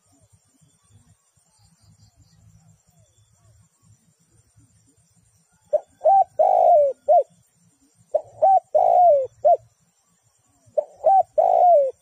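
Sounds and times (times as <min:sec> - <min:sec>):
dove cooing: 0:05.6 - 0:07.4, 0:08.0 - 0:09.7, 0:10.6 - 0:12.0.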